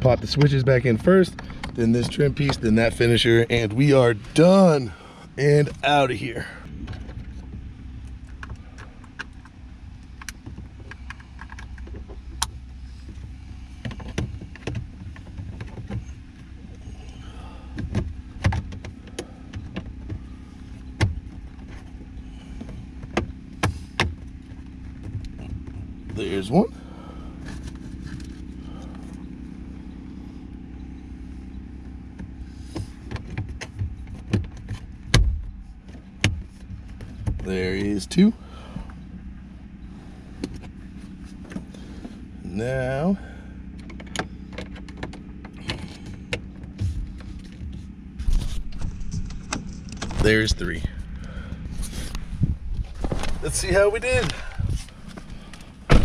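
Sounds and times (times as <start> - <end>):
low steady hum: 0.0 - 56.0.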